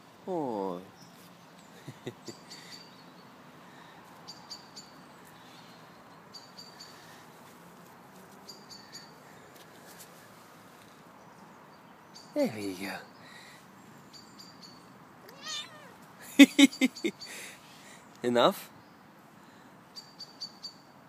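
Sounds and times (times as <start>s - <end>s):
bird chirping: 8.4s - 9.2s, 11.2s - 18.2s, 19.9s - 20.9s.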